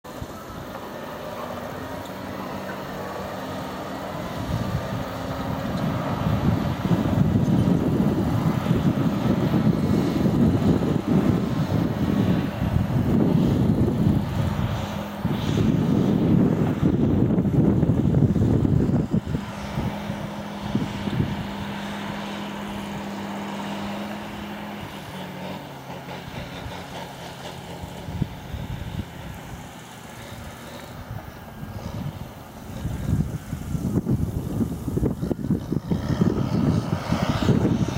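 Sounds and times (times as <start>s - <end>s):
bulldozer diesel engine: 0.0s - 37.9s
bulldozer tracks moving: 0.0s - 37.9s.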